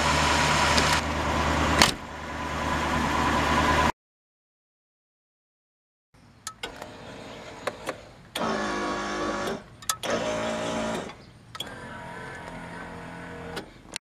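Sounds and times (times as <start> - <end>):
electric seat motor running: 8.4 - 13.7.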